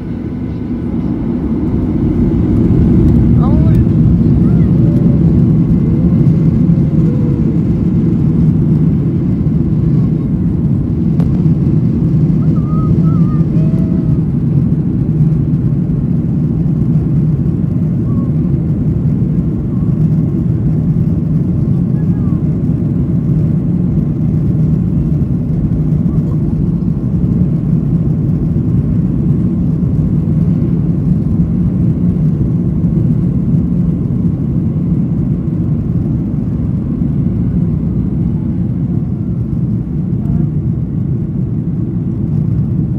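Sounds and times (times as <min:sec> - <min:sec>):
jet engines rumbling: 0:00.0 - 0:42.9.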